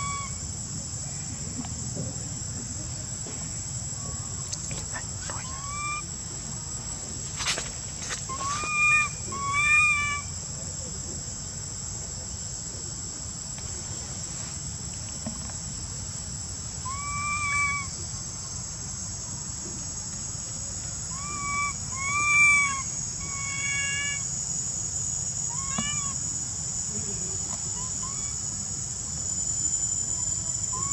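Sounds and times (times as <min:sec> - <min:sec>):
high insect drone: 0:00.0 - 0:30.9
baby monkey high cries: 0:08.3 - 0:10.3, 0:16.9 - 0:17.9, 0:21.1 - 0:24.3, 0:25.5 - 0:26.2, 0:27.7 - 0:28.4.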